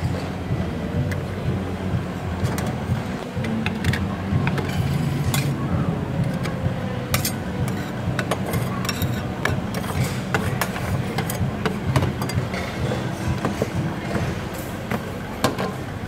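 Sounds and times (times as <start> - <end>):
steady low hum: 0.0 - 16.0
metal spatulas tapping and scraping: 3.7 - 5.6, 7.1 - 13.6.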